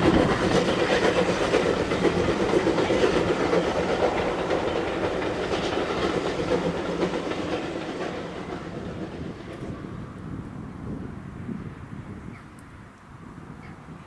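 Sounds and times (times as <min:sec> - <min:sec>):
wheels clattering over rail joints: 0:00.0 - 0:09.8
steam train rumbling: 0:00.0 - 0:12.4.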